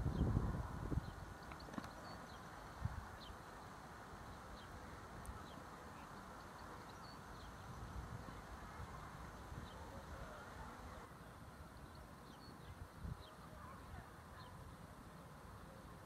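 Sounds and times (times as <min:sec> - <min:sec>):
wind gusting on microphone: 0:00.0 - 0:03.4
faint bird chirps: 0:00.9 - 0:15.9.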